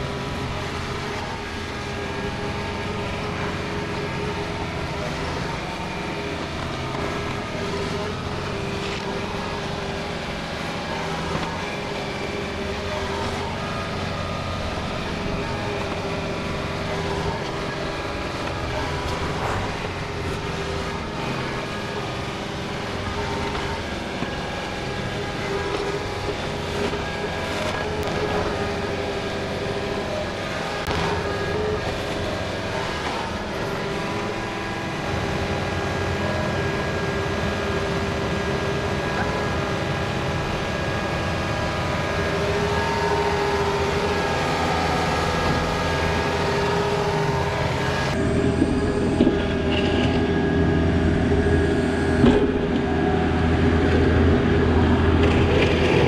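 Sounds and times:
diesel engine running with whine: 0.0s - 56.0s.

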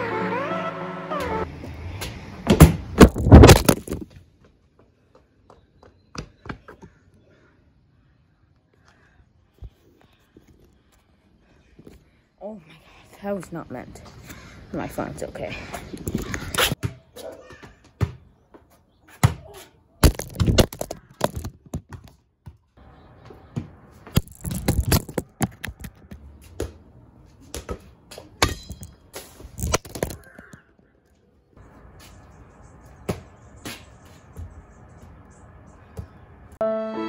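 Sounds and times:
balls bouncing on brick: 19.2s - 22.6s, 23.6s - 26.8s, 29.6s - 30.8s.

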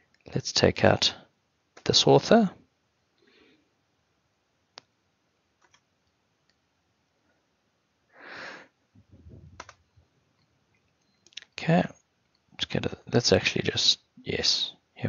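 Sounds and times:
computer mouse clicks: 5.6s - 5.8s, 9.5s - 9.8s
short breath: 8.2s - 8.7s.

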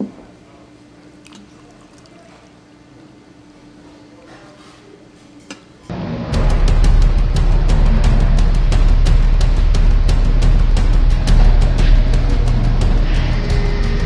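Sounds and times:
faint steady hum: 0.0s - 5.7s
water poured into a mug: 1.2s - 2.6s
loud bass-heavy music: 5.9s - 14.0s.

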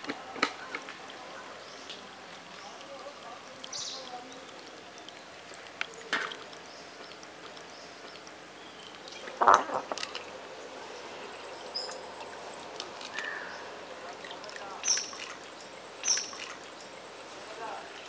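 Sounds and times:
small knocks: 9.4s - 10.2s.

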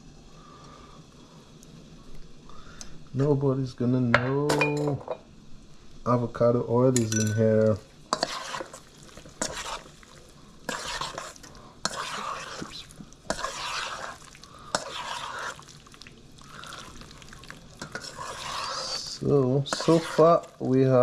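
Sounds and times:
wet swishing of mixing meat: 8.2s - 21.0s.

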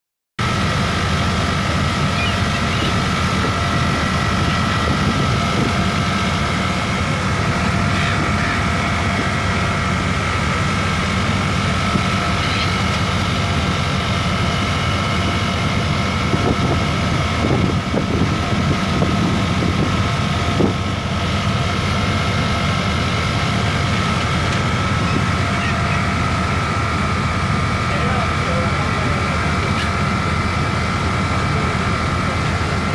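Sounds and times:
boat engines rumbling with whine: 0.4s - 32.9s
wind noise: 3.4s - 6.0s, 16.2s - 20.9s.

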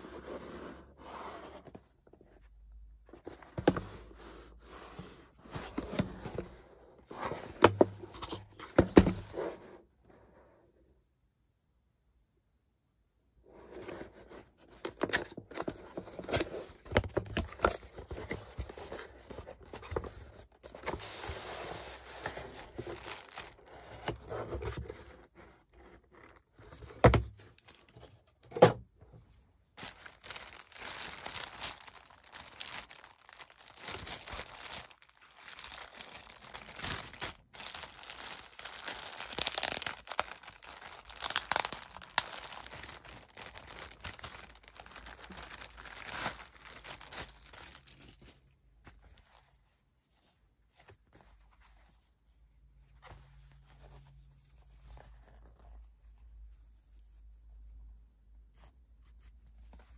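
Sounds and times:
plastic and paper crinkling: 2.4s - 4.2s, 5.0s - 9.5s, 14.3s - 28.3s, 29.7s - 49.5s.

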